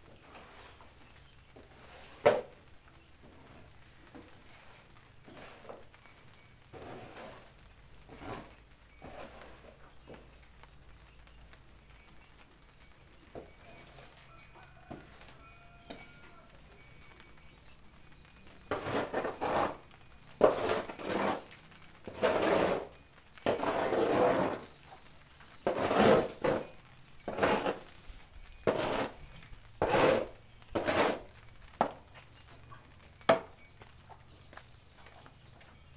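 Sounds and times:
shovel scraping wet concrete: 1.7 - 2.5, 4.7 - 5.8, 6.8 - 7.5, 8.1 - 9.7, 18.7 - 19.8, 20.4 - 21.5, 22.1 - 22.9, 23.5 - 24.7, 25.6 - 26.7, 27.3 - 27.9, 28.6 - 29.2, 29.8 - 31.3.

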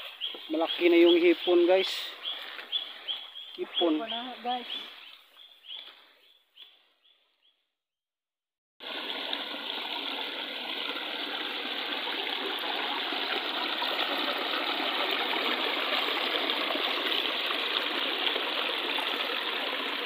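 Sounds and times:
stream water splashing over rocks: 8.8 - 20.0.

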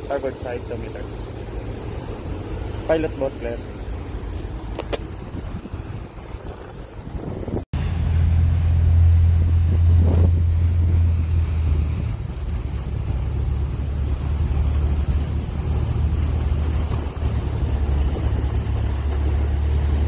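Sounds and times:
boat engines droning: 0.0 - 20.0
churning wake water: 0.0 - 20.0.

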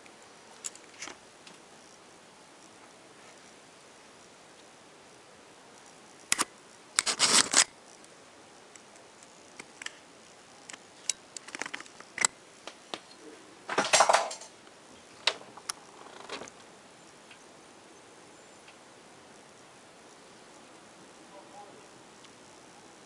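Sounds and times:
scraping rustles: 7.0 - 7.7.

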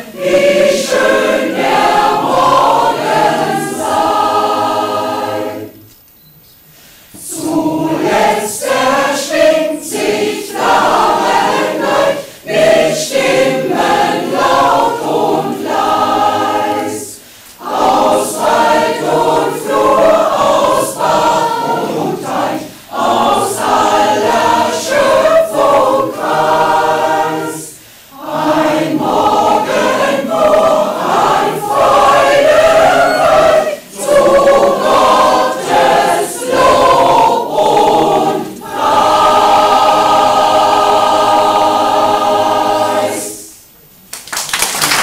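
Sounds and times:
choir singing a cappella: 0.0 - 6.0, 6.8 - 43.8
singers breathing: 6.6 - 7.3, 12.2 - 12.5, 17.2 - 17.6, 22.6 - 23.0, 27.7 - 28.2.

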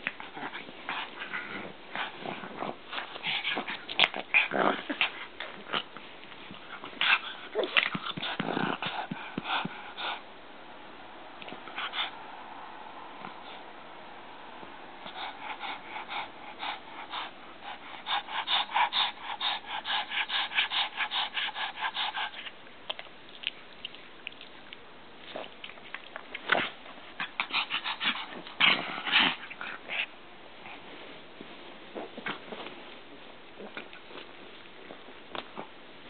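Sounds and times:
dog munching and smacking: 21.4 - 29.8.

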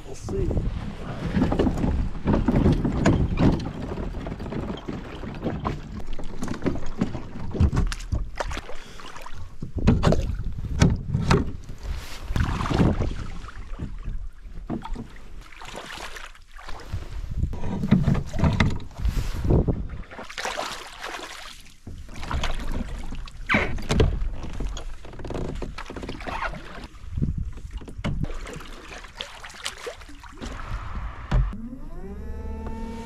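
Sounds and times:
boots splashing in water: 4.8 - 10.4, 12.0 - 14.2, 14.8 - 17.0, 18.1 - 23.5, 27.6 - 30.7.

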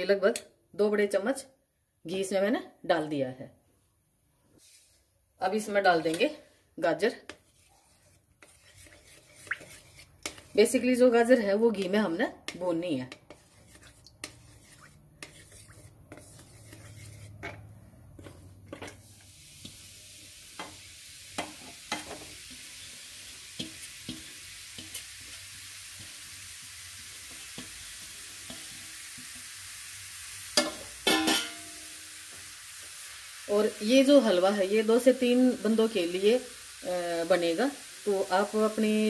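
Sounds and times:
carrots sizzling in hot ghee: 7.0 - 17.4, 18.2 - 39.0
wooden spatula scraping and tapping: 7.1 - 10.8, 11.8 - 19.8, 21.4 - 22.7, 23.6 - 25.4, 27.2 - 29.4.

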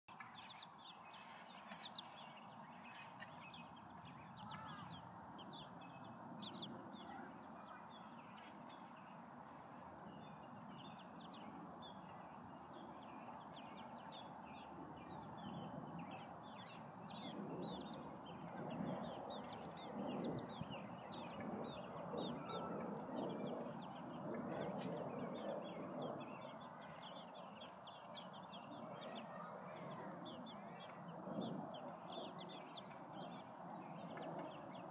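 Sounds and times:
chicks peeping: 15.0 - 25.7.

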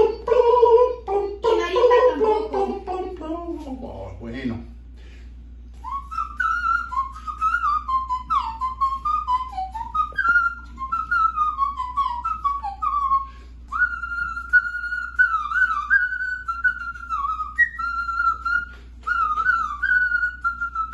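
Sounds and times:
man whistling a melody: 5.7 - 20.9.

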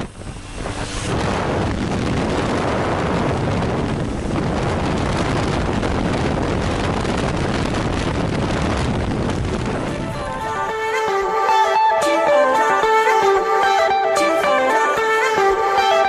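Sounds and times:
wind buffeting microphone: 0.0 - 10.7
wind rushing: 0.0 - 12.9
aircraft engine noise: 0.0 - 13.4.

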